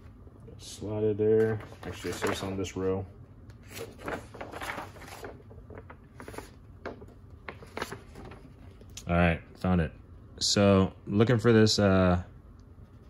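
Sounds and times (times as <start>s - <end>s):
paper sheet rustling and crinkling: 1.4s - 2.9s, 3.6s - 9.0s.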